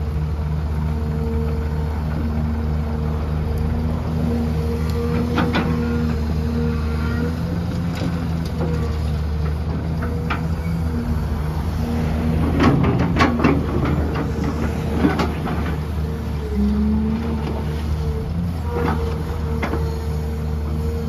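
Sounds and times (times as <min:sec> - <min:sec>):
excavator diesel engine running: 0:00.0 - 0:21.0
knocks and clatter: 0:12.4 - 0:15.9.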